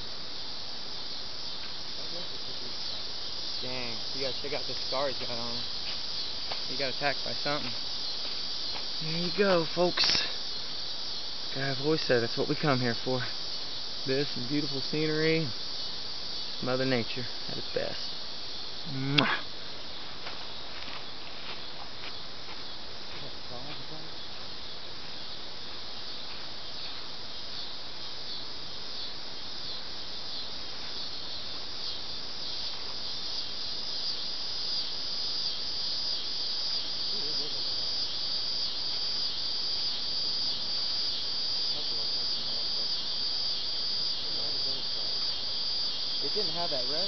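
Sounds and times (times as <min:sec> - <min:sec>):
insects buzzing: 0:00.0 - 0:47.0.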